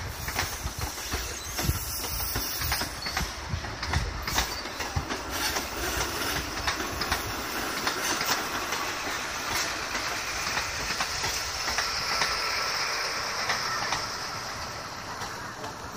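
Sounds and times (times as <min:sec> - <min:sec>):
train power car whine: 0:00.0 - 0:15.9
train coaches clicking over rail joints: 0:00.1 - 0:15.9.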